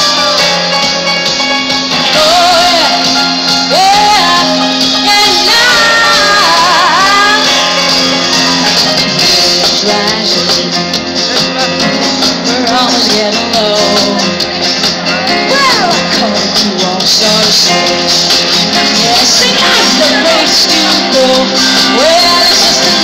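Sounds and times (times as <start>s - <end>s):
pop dance band playing: 0.0s - 23.0s
female vocalist singing: 2.0s - 7.8s, 12.5s - 14.4s, 15.4s - 23.0s.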